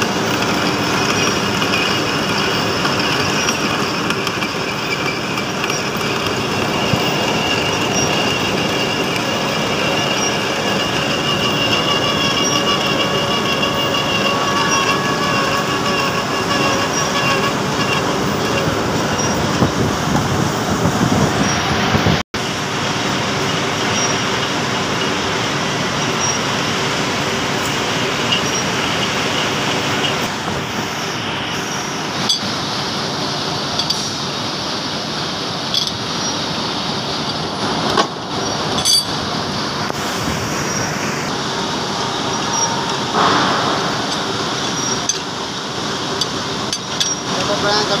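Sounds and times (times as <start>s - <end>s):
metal lathe running: 0.0s - 48.0s
short metallic clinks: 35.7s - 36.4s, 38.6s - 39.2s.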